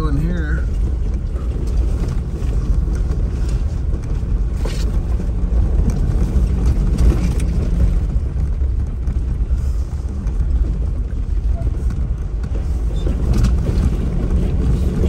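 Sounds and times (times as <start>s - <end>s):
engine and tyre rumble: 0.0s - 15.0s
vehicle knocks and rattles: 0.0s - 15.0s.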